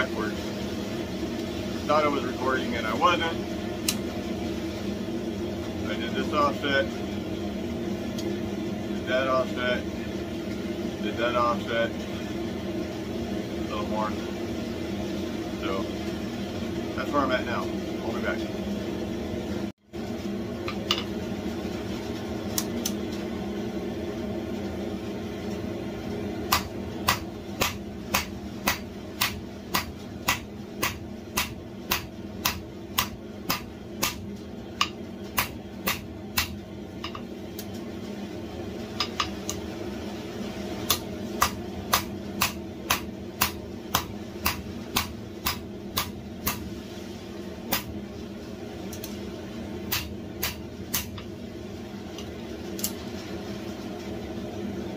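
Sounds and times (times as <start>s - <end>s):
hammer striking hot steel on anvil: 20.7s - 21.1s, 26.5s - 37.2s, 39.0s - 39.6s, 40.8s - 46.7s, 47.7s - 47.9s, 49.9s - 51.3s.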